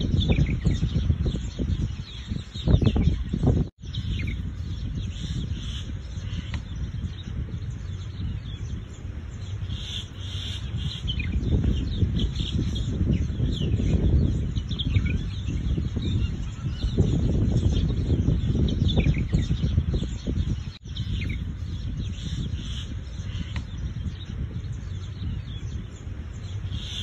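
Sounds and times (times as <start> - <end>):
small birds chirping: 0.0 - 27.0.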